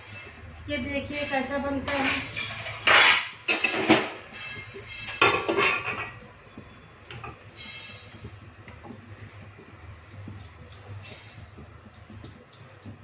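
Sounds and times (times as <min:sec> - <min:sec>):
steel plates clattering: 0:01.9 - 0:04.2, 0:05.1 - 0:06.2.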